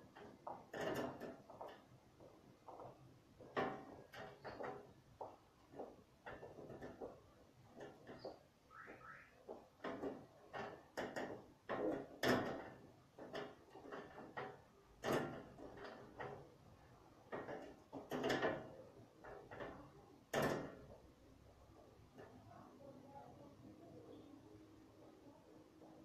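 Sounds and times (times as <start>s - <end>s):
objects knocking and bumping: 0.0s - 8.5s, 9.5s - 22.5s.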